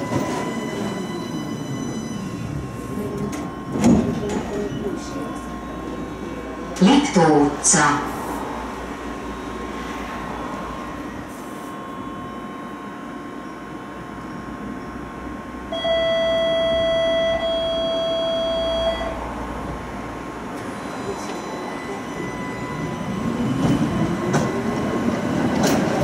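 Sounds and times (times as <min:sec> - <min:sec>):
low steady tram hum: 0:00.0 - 0:26.0
electronic door warning tone: 0:15.7 - 0:19.3.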